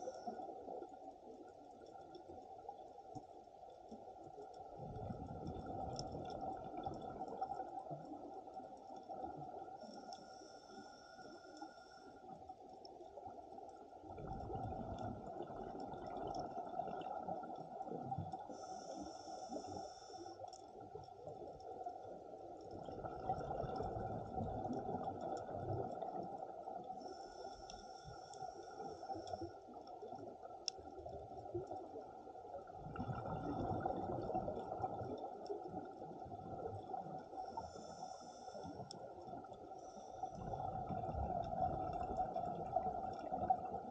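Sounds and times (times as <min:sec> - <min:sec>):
exhaled bubbles rumbling: 0:04.6 - 0:09.8, 0:13.0 - 0:18.6, 0:20.8 - 0:27.0, 0:29.7 - 0:37.7, 0:40.3 - 0:43.9
regulator inhale hiss: 0:09.8 - 0:12.4, 0:18.5 - 0:20.6, 0:26.9 - 0:29.6, 0:37.4 - 0:39.1.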